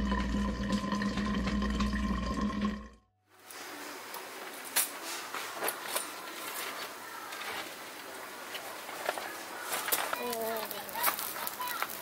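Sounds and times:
water gushing into flask: 0:00.0 - 0:03.0.

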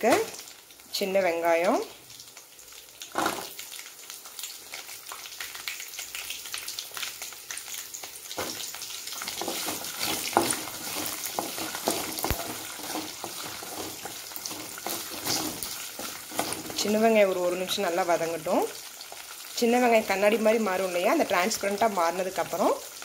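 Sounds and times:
shallots sizzling in oil: 0:00.0 - 0:23.0
spatula scraping pan: 0:09.2 - 0:17.1.

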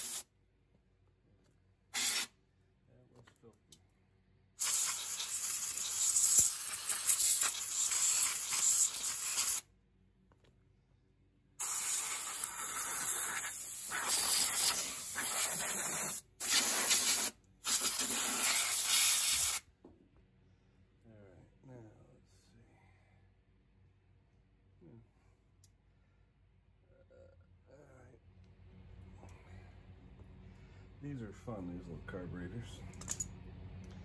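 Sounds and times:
compressed air hissing: 0:00.0 - 0:00.2, 0:01.9 - 0:02.3, 0:04.6 - 0:09.6, 0:11.6 - 0:19.6.

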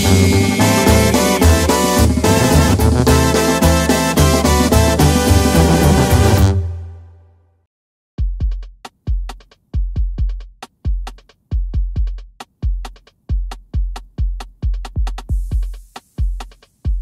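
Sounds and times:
cymbal hiss: 0:00.0 - 0:04.1
deep drum machine kicks: 0:00.0 - 0:05.3, 0:08.2 - 0:17.0.

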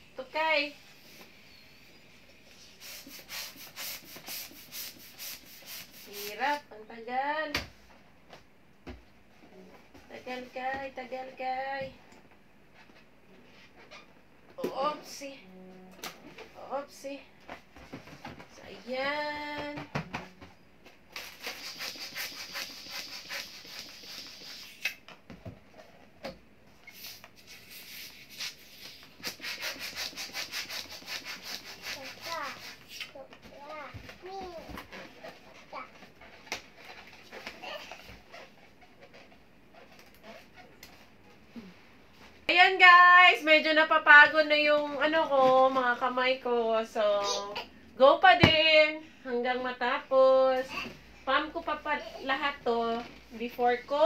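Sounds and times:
hand pump air strokes hissing: 0:02.6 - 0:06.3, 0:21.2 - 0:25.0, 0:26.8 - 0:33.1
balloons rubbing and scraping: 0:21.2 - 0:24.9, 0:26.8 - 0:33.2, 0:34.2 - 0:40.8.

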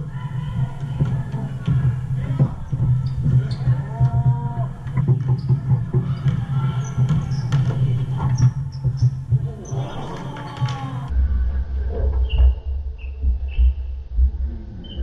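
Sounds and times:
basketball bouncing: 0:00.4 - 0:11.1
sneaker squeaks: 0:01.0 - 0:11.1.

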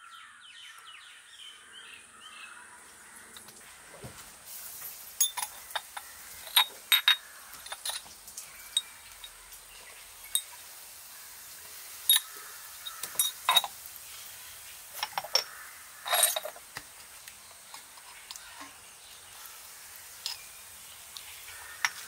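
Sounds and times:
glass jars clinking: 0:05.2 - 0:08.1, 0:12.0 - 0:13.8, 0:15.0 - 0:16.8
scraping rattle: 0:15.0 - 0:16.6.

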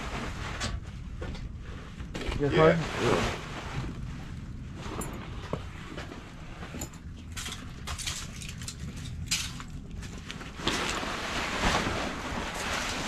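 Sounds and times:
fabric cover rustling: 0:00.0 - 0:06.9, 0:10.0 - 0:13.0
steady low rumble: 0:00.0 - 0:13.0.

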